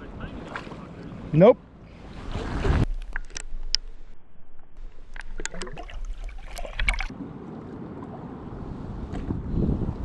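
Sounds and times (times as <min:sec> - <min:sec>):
clicks and knocks of water: 0:05.1 - 0:07.1.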